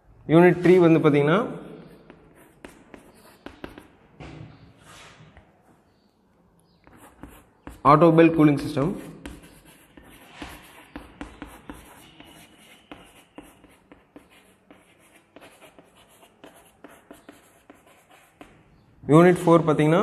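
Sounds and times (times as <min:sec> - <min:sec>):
chalk tapping and scratching: 0:01.7 - 0:04.0, 0:06.8 - 0:18.8.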